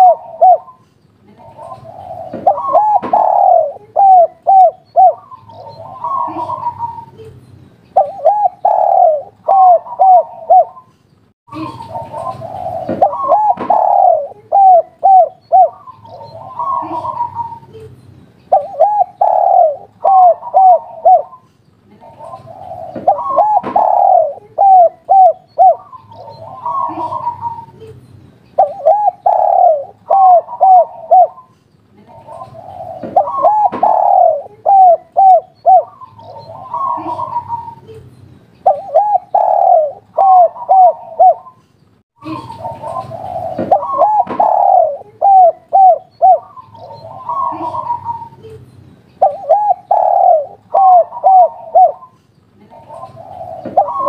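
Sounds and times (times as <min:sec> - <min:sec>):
dove cooing: 0:00.0 - 0:07.3, 0:08.0 - 0:10.9, 0:11.5 - 0:17.9, 0:18.5 - 0:27.9, 0:28.6 - 0:38.0, 0:38.6 - 0:41.6, 0:42.2 - 0:48.6, 0:49.2 - 0:54.0.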